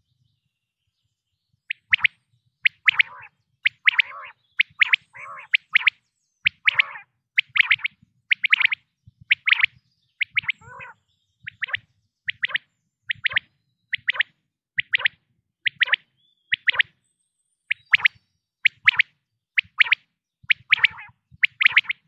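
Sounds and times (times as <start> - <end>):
quail calling: 1.7 - 2.1, 2.7 - 16.9, 19.6 - 22.0.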